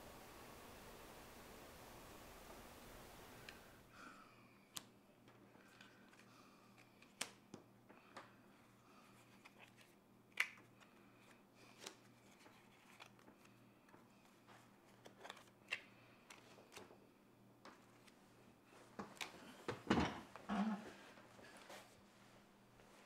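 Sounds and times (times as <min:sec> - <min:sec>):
cards snapping on wooden table: 0:06.8 - 0:08.2, 0:09.4 - 0:10.9.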